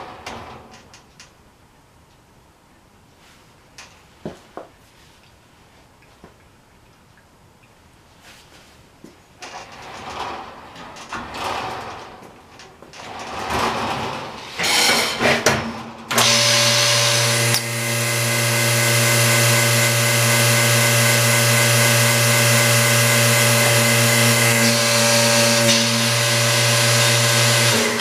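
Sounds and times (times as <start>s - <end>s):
knocks and clatters: 9.1s - 16.2s
powered machine running: 16.1s - 28.0s.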